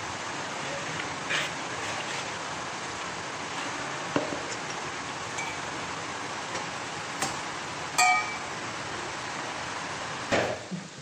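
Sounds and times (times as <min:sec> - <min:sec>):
steady background hiss: 0:00.0 - 0:11.0
spoon clinking in bowl: 0:08.0 - 0:08.5.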